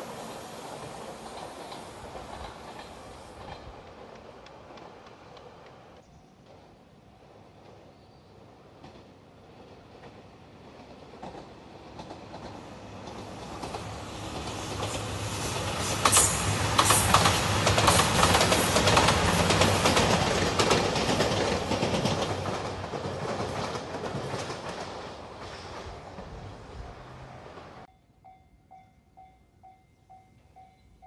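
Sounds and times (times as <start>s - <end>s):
train wheels clicking over rail joints: 0.2s - 6.7s, 10.0s - 27.3s
diesel train engines running: 11.2s - 27.9s.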